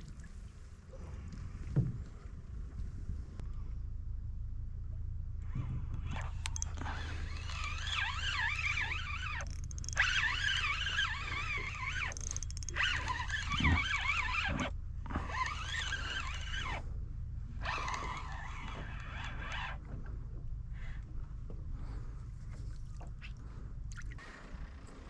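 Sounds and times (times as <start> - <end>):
steady low hum: 0.0 - 25.0
fishing reel gears whining: 6.0 - 16.9, 17.6 - 19.8.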